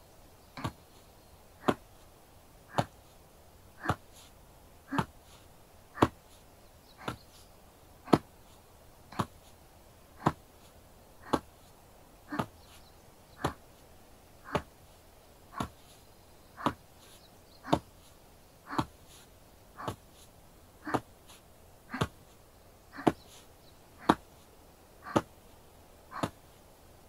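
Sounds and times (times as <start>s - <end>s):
hands tapping a shoulder: 0.6s - 0.8s, 1.6s - 1.9s, 2.7s - 3.0s, 3.8s - 4.3s, 4.9s - 5.4s, 6.0s - 6.4s, 7.0s - 7.3s, 8.1s - 8.4s, 9.1s - 9.5s, 10.2s - 11.6s, 12.3s - 12.8s, 13.4s - 13.8s, 14.4s - 14.7s, 15.5s - 16.0s, 16.6s - 18.0s, 18.7s - 19.2s, 19.8s - 23.4s, 24.0s - 24.4s, 25.0s - 25.4s, 26.1s - 26.5s.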